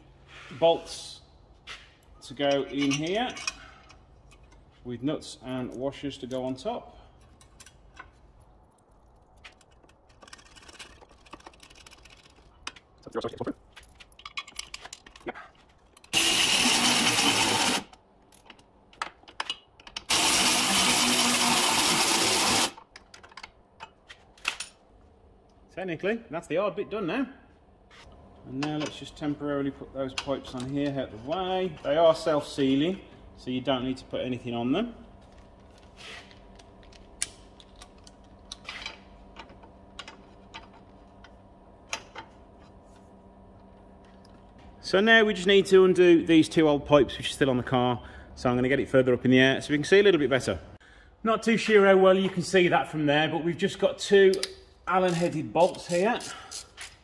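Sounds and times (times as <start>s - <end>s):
power driver whirring: 16.1s - 17.9s, 20.1s - 22.8s.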